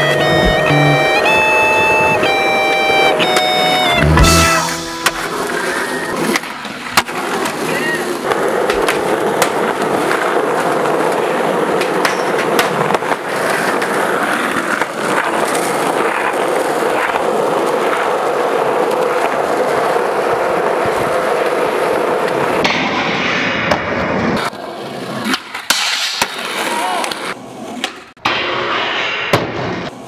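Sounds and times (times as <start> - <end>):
skateboard knocks: 0.0 - 2.2, 8.6 - 10.3
skateboard wheels rolling on asphalt: 0.0 - 30.0.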